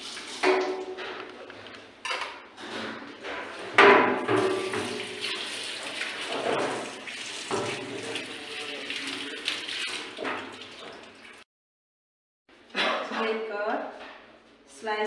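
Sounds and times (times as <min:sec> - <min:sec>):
clank against metal sink: 0:00.4 - 0:01.3, 0:02.0 - 0:05.2, 0:07.5 - 0:08.2
tap water running into sink: 0:03.8 - 0:11.4.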